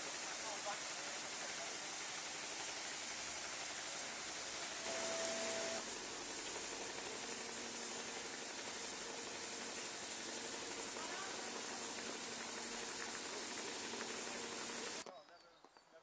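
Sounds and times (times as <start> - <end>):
short steady tone: 4.8 - 5.8.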